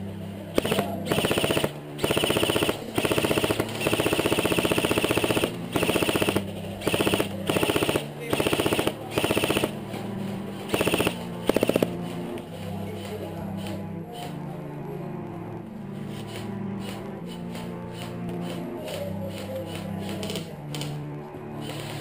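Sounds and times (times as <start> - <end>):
airsoft rifle firing bursts: 0.5 - 9.8, 10.7 - 12.3, 18.0 - 20.5.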